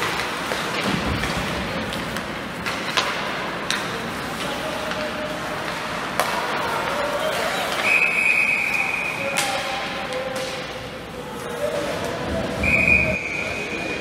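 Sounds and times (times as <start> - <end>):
murmur of voices: 3.5 - 14.0.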